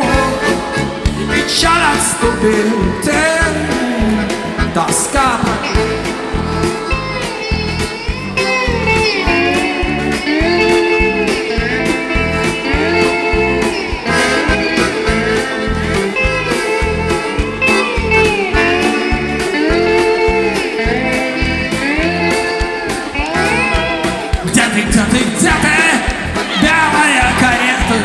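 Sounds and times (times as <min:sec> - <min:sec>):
electric guitar solo: 0:00.0 - 0:28.0
steady drum beat: 0:00.0 - 0:28.0.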